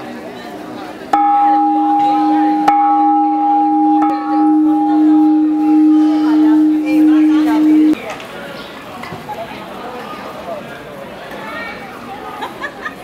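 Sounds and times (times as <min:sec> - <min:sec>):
large bell struck and ringing: 0:01.2 - 0:08.0.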